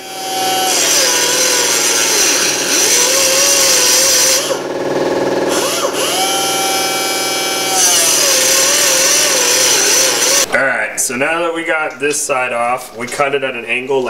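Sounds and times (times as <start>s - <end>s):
cut-off wheel grinding metal pipe: 0.0s - 10.5s.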